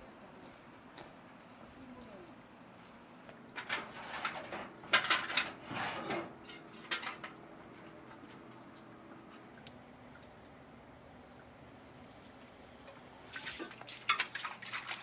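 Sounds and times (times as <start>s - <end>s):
bucket handle rattling: 3.6s - 7.3s
metal pail knocking and clanking: 3.6s - 7.4s, 13.5s - 15.0s.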